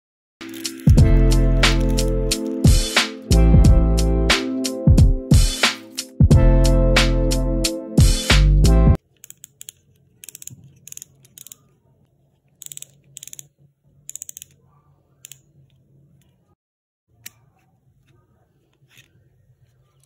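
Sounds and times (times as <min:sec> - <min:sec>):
background music: 0:00.4 - 0:09.0
trimmer dial ratcheting clicks: 0:09.2 - 0:11.6, 0:12.6 - 0:13.5.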